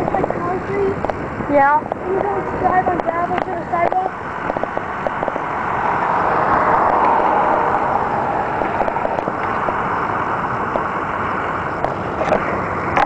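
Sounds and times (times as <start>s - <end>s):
car passing: 2.0s - 11.9s.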